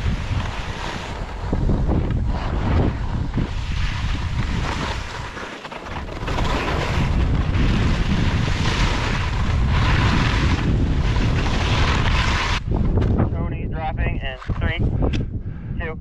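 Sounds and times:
skis scraping over snow: 0.0s - 12.6s
wind buffeting microphone: 0.0s - 16.0s.

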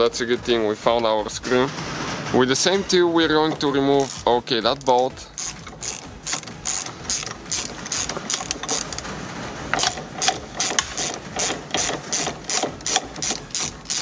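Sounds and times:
hand ratchet clicking: 3.3s - 14.0s.

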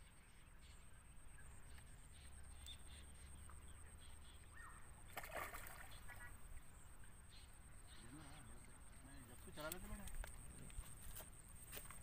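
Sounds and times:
water splashing: 5.1s - 6.4s.

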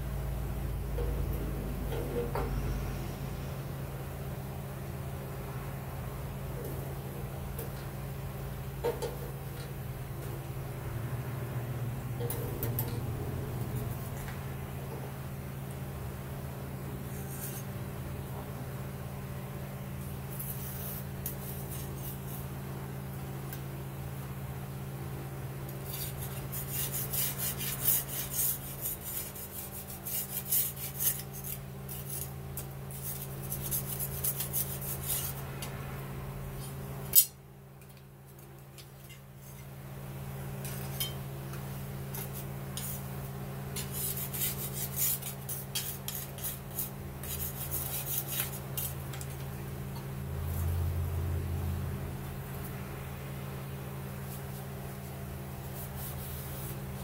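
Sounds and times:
steady low hum: 0.0s - 57.0s
metal scraping on knife blade: 25.8s - 35.4s, 43.8s - 49.0s.

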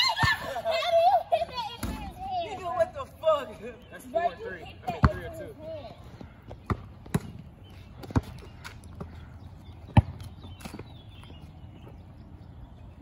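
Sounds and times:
basketball bouncing: 4.9s - 5.4s, 6.5s - 9.1s, 9.8s - 10.8s.

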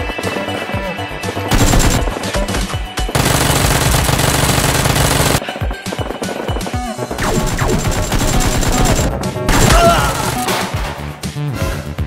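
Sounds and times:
background music: 0.0s - 12.0s
automatic gunfire: 1.5s - 2.5s, 3.1s - 5.4s, 7.2s - 9.8s.

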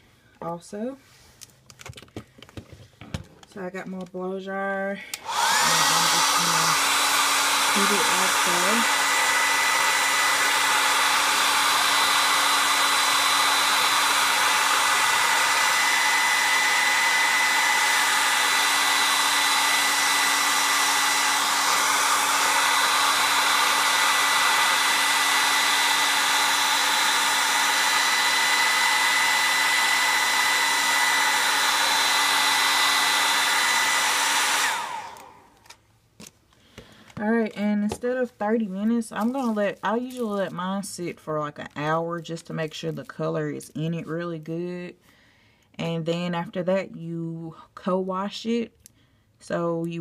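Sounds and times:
hair dryer whining: 5.1s - 40.7s.

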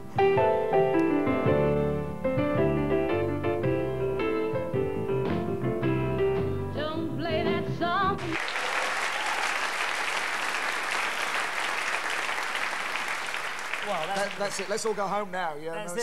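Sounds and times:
grand piano chords: 0.0s - 8.3s
woman singing with vibrato: 6.8s - 8.5s
audience applauding: 8.2s - 15.3s.

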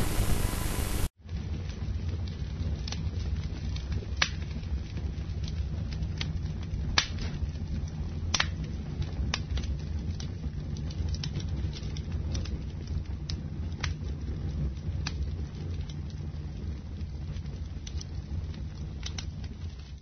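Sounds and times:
faint static hiss: 0.0s - 1.1s
low steady hum: 0.0s - 1.1s
sharp crackles and clicks: 0.0s - 1.1s, 2.2s - 20.0s.

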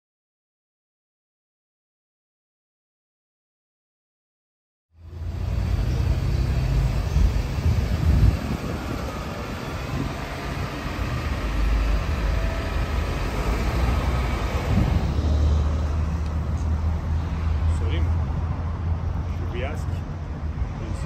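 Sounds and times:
cars driving past: 5.0s - 21.0s.

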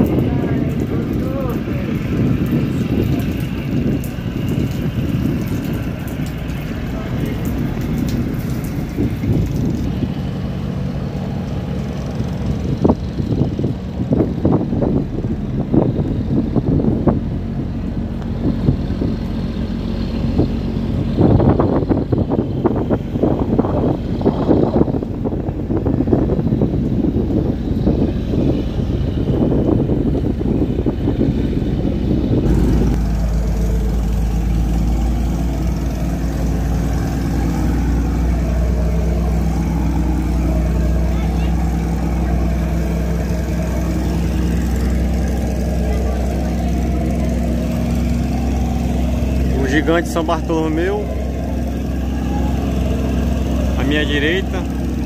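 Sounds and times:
ship diesel engine hum: 0.0s - 55.0s
wind buffeting microphone: 0.0s - 55.0s.

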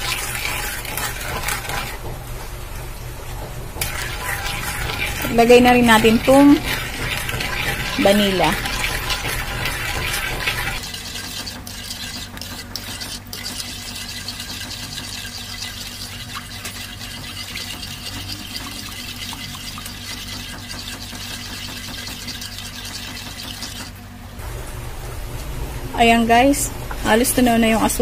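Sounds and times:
wooden spoon scraping wok: 0.0s - 2.1s, 3.8s - 23.9s.

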